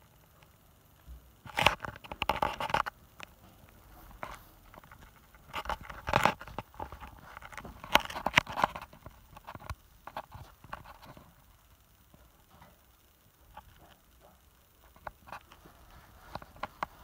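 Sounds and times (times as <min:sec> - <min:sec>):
plastic toy clicking and scraping: 0:01.5 - 0:03.0.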